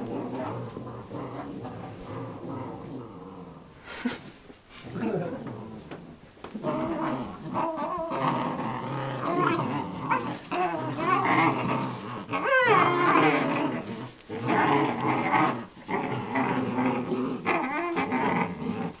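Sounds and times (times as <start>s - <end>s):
puppies growling: 0.0s - 3.9s, 4.8s - 19.0s.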